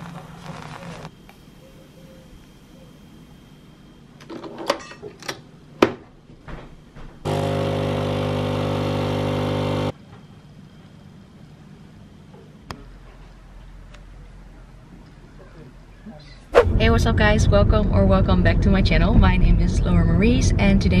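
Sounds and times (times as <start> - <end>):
kitchen appliance buzzing: 7.3 - 10.0.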